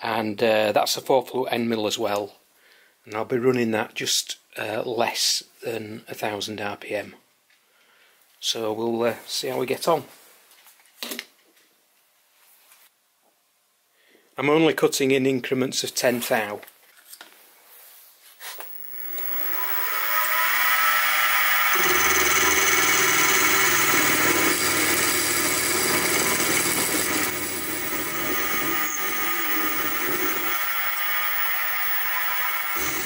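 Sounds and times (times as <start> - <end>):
milling machine whine: 18.5 - 33.0.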